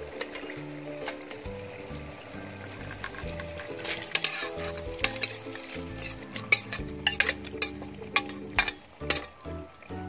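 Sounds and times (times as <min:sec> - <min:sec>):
background music: 0:00.0 - 0:10.0
gravy sizzling and bubbling: 0:00.0 - 0:10.0
metal ladle scraping pot: 0:02.7 - 0:09.4.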